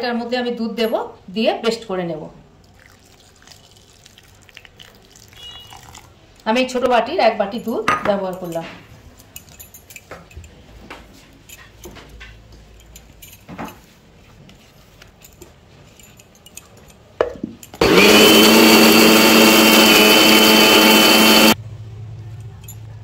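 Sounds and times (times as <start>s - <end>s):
mixer grinder running: 17.8s - 21.6s.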